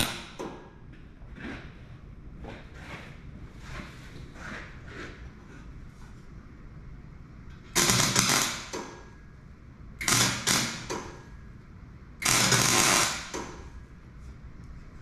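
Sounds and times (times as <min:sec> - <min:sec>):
arc welding crackling: 0:07.8 - 0:08.9, 0:10.0 - 0:11.0, 0:12.2 - 0:13.6.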